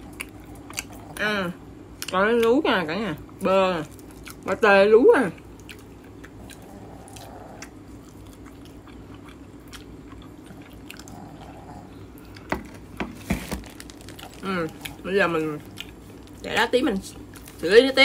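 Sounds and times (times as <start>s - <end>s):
person chewing: 0.0s - 2.2s, 3.3s - 4.5s, 5.3s - 16.4s
crunching bread crust: 12.3s - 16.5s.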